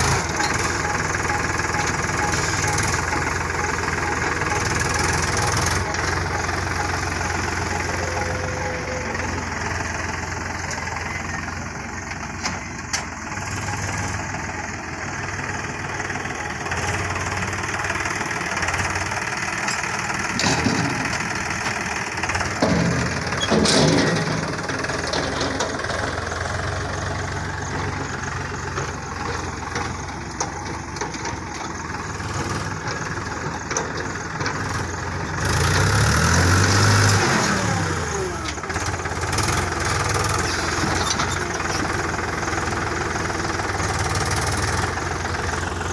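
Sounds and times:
tractor engine running: 0.0 - 45.9.

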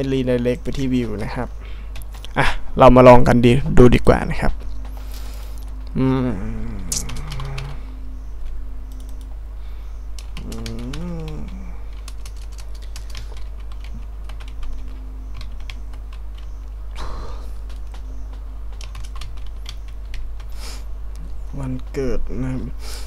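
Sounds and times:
low hum: 0.0 - 23.0
man murmuring: 5.9 - 7.9, 10.4 - 11.9
keyboard typing clicks: 6.9 - 7.8, 8.4 - 9.3, 10.1 - 20.3.

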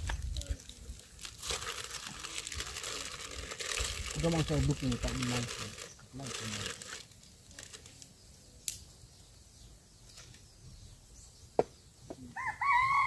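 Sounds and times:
rooster crowing: 12.4 - 13.0.

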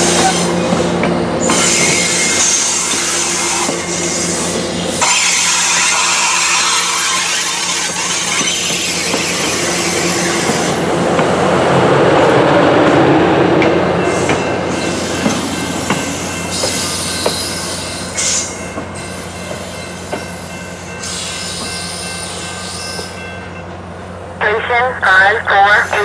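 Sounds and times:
train wheels rumbling on rails: 0.0 - 26.0
high wheel squeal: 1.4 - 10.4.

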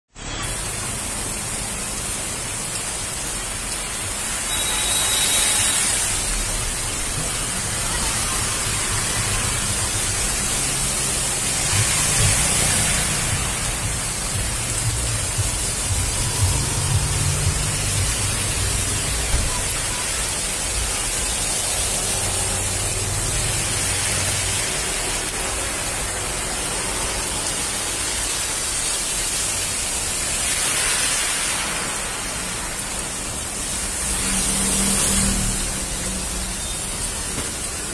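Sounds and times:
heavy rain on a street: 0.1 - 37.9.

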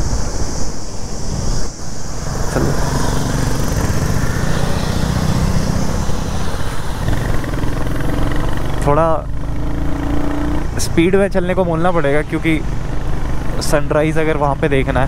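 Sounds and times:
wind noise on microphone: 0.0 - 8.7
motorcycle engine running: 2.3 - 15.0.

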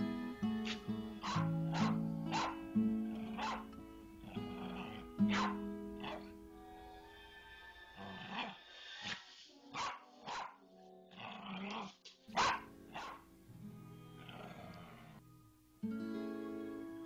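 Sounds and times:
soft background music: 0.0 - 17.0
small dog barking: 0.6 - 6.3, 9.7 - 10.6, 11.8 - 13.3.

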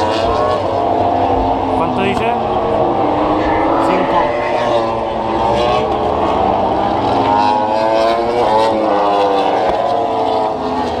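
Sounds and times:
racing motorcycles at high revs: 0.0 - 11.0.

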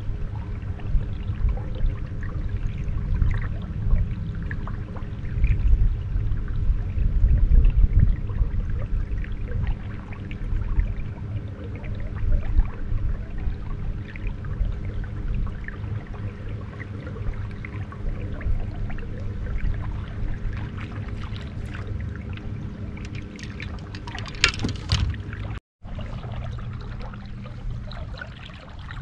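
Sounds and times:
low rumble: 0.0 - 29.0
water lapping against boat hull: 0.0 - 29.0
small splashes: 15.5 - 29.0.

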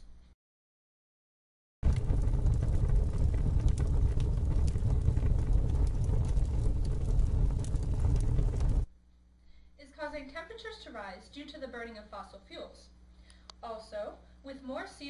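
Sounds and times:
motor engine low rumble: 1.9 - 8.9.

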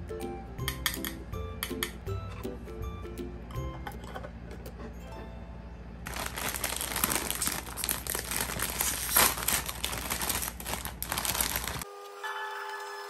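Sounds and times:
chip bag crinkling: 6.1 - 11.9.

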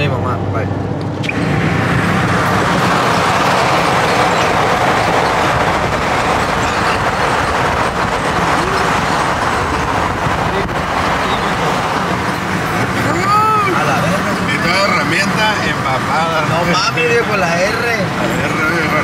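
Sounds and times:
vehicle road and engine noise: 0.0 - 19.0.

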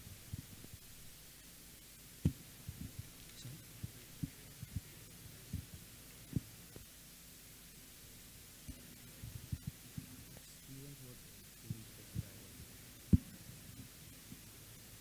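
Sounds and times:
faint steady hum: 0.0 - 15.0
microphone handling thumps: 2.2 - 3.2.

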